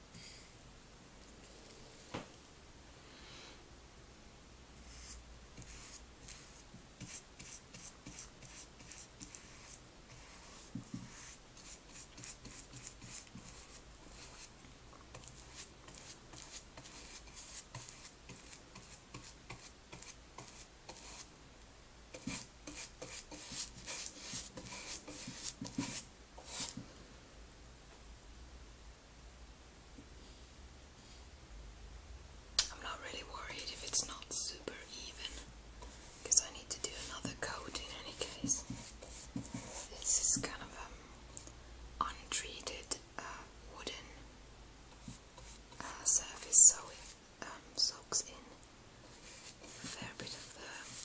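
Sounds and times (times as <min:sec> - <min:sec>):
paintbrush strokes on wood: 0:04.8 - 0:14.5, 0:15.1 - 0:21.3, 0:22.2 - 0:26.8, 0:33.7 - 0:40.8, 0:45.0 - 0:47.2, 0:49.0 - 0:51.0.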